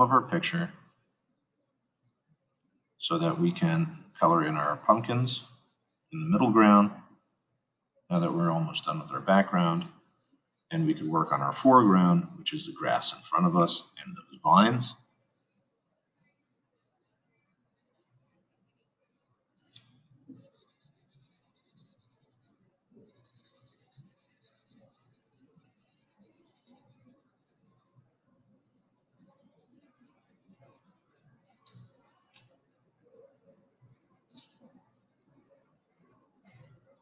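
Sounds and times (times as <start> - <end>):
felt-tip marker scratching on paper: 0.1 - 2.4, 4.8 - 6.2, 8.8 - 28.0, 29.0 - 32.3.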